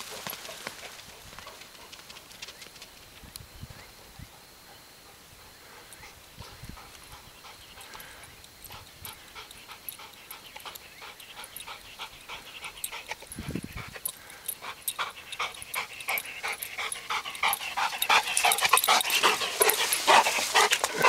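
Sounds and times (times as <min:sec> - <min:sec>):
dog paws crunching on gravel: 0:00.0 - 0:03.1, 0:11.4 - 0:21.0
dog panting: 0:04.3 - 0:21.0.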